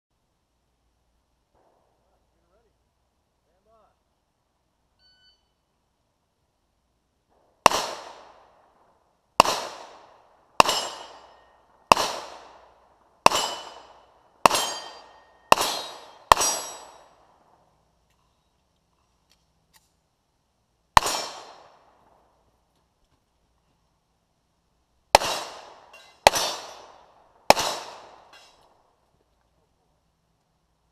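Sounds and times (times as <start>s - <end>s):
handgun shots: 9.4s - 12.6s, 13.2s - 17.0s, 21.0s - 21.7s, 25.2s - 28.6s
ringing of struck steel: 10.6s - 11.6s, 13.3s - 13.9s, 14.5s - 17.1s.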